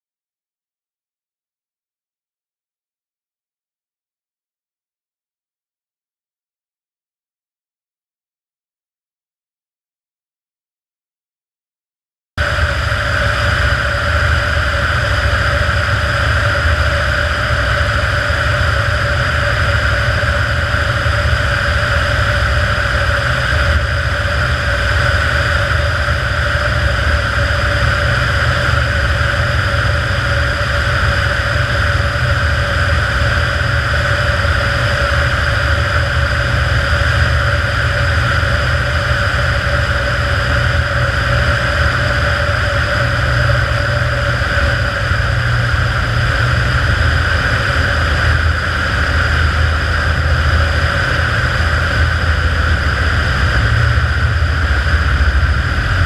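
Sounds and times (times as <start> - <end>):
plane engine and propeller: 12.4 - 56.0.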